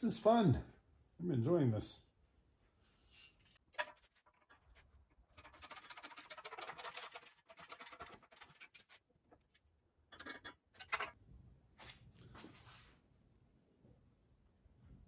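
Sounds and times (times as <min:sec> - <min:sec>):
rapid dry scratching: 0:03.8 - 0:09.1.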